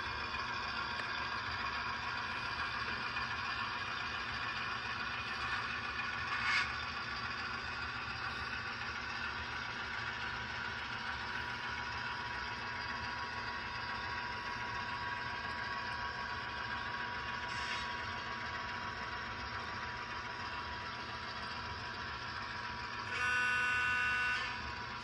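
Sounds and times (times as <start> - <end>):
model train wheels clattering: 5.3 - 6.8.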